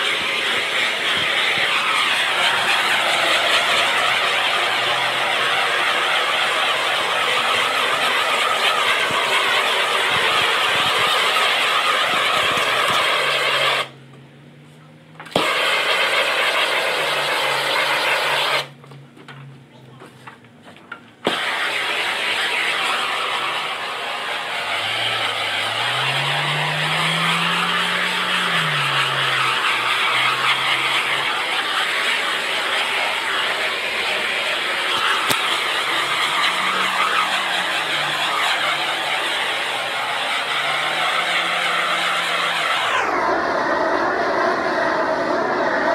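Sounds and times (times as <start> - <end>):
heat gun rushing hiss: 0.0 - 13.9, 15.3 - 18.7, 21.2 - 43.2
low hum: 21.3 - 45.9.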